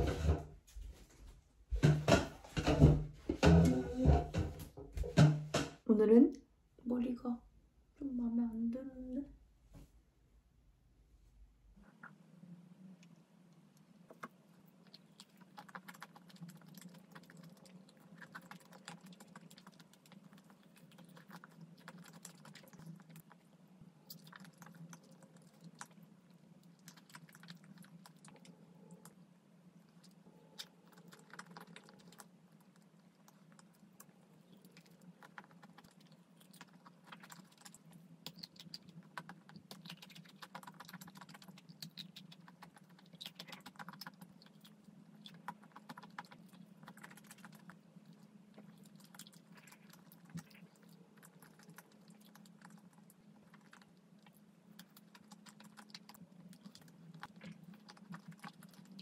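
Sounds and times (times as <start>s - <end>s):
low steady hum: 0.0s - 59.0s
chewing with wet mouth clicks: 14.1s - 29.2s, 29.8s - 59.0s.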